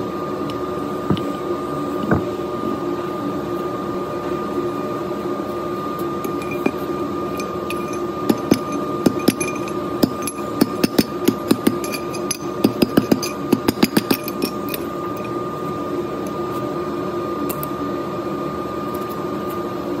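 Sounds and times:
steady background hum: 0.0 - 20.0
sharp metal knocks and taps: 8.3 - 14.5.

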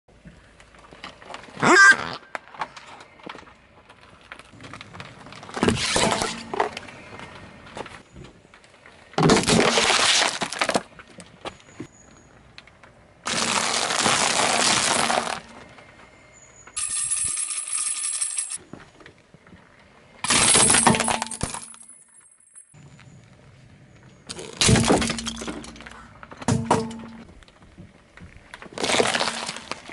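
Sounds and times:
tyre crushing brittle objects: 9.2 - 11.7, 13.2 - 15.6, 28.5 - 29.9.

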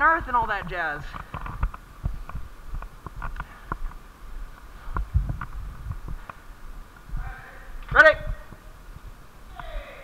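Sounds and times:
body-worn camera knocking and rustling: 0.5 - 4.0, 4.9 - 6.4
footsteps on concrete floor: 0.6 - 7.2.

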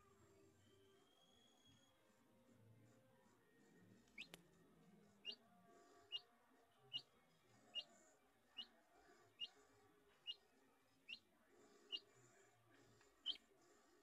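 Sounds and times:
chick peeping: 4.2 - 4.4, 11.0 - 11.3, 11.9 - 12.1, 13.2 - 13.4.

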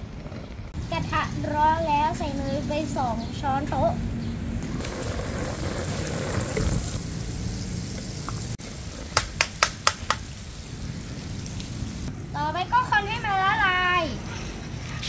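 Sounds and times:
butter sizzling in a wok: 4.8 - 9.0, 10.0 - 12.1.

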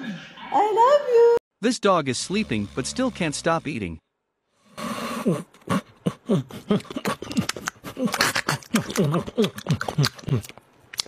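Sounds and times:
dog vocalizing while eating: 5.7 - 11.0
teeth clicking and crunching: 6.5 - 11.0.

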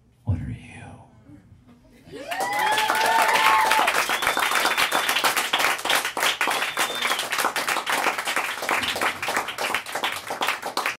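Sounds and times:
audience clapping and cheering: 2.1 - 11.0
high whistle from crowd: 3.4 - 5.3, 6.4 - 7.5.

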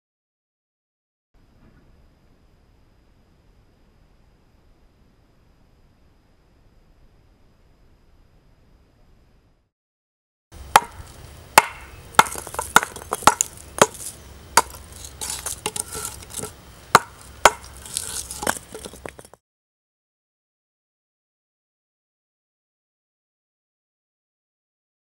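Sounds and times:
knife pommel hammering brick: 10.7 - 19.4
brick crumbling clatters: 12.2 - 19.4.

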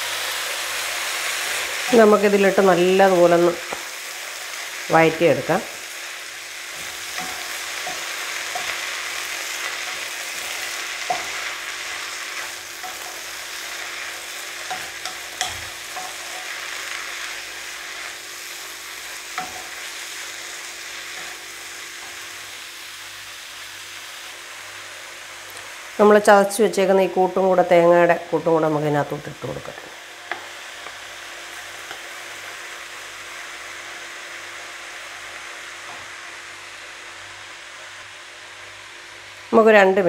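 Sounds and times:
leaves sizzling in hot oil: 0.0 - 40.0
spatula tapping a pan: 14.7 - 16.4, 19.4 - 19.7.

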